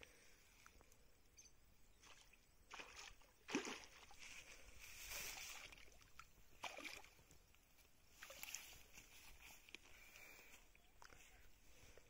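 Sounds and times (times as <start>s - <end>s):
fish splashing in shallow water: 2.0s - 7.3s, 8.1s - 9.0s.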